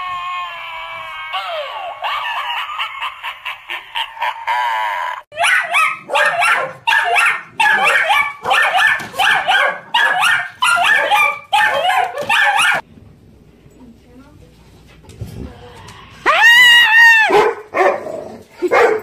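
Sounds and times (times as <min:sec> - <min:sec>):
dog barking rapidly: 0:05.3 - 0:12.8, 0:17.3 - 0:18.1, 0:18.7 - 0:19.0.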